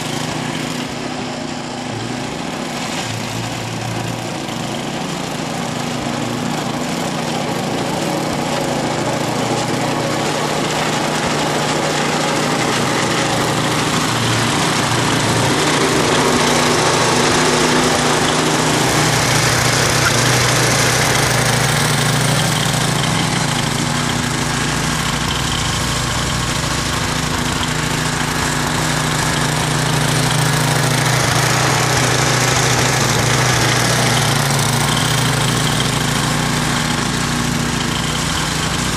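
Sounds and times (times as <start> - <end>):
snowblower engine running: 0.0 - 38.9
snowblower throwing snow: 0.0 - 38.9.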